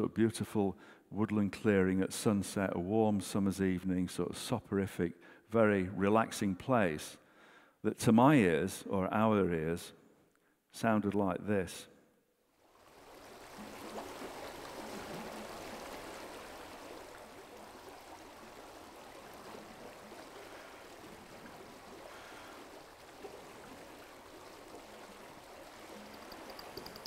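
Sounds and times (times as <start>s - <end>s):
stream water running: 12.5s - 27.0s.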